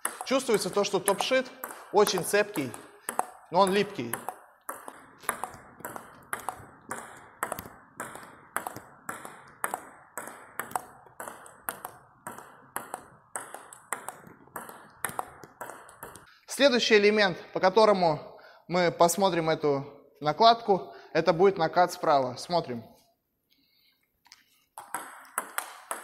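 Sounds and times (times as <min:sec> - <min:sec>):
table tennis ball clicking: 0:00.0 - 0:16.3, 0:24.8 - 0:26.0.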